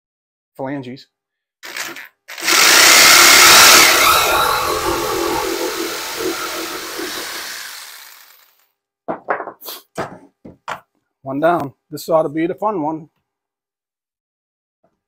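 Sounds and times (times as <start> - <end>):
jigsaw cutting wood: 1.7 - 8.6.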